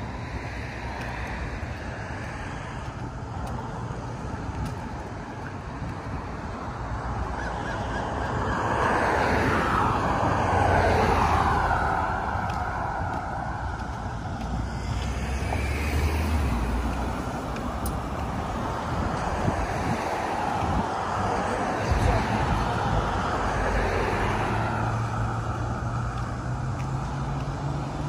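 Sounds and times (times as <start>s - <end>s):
road traffic rush: 0.0s - 28.0s
vehicle passing close by: 7.5s - 28.0s.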